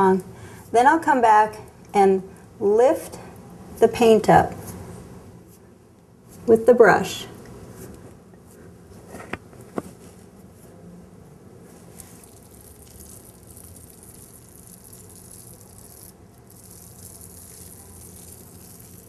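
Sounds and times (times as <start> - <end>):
paint roller hissing on wall: 11.9 - 19.0.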